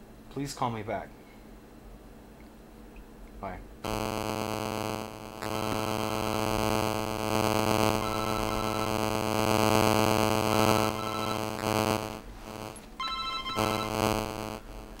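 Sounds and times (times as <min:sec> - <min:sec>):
buzzy electronic drone: 0:03.8 - 0:15.0.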